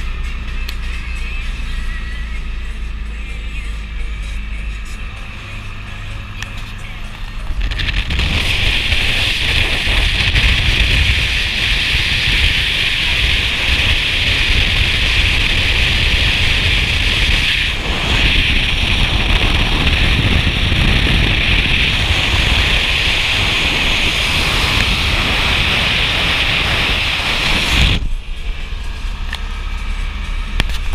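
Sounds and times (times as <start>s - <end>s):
road and engine rumble: 0.0s - 30.9s
wind noise on microphone: 7.3s - 29.5s.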